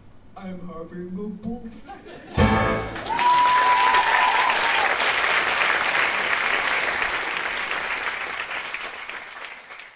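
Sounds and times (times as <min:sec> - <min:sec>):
audience applauding: 0:02.8 - 0:09.9.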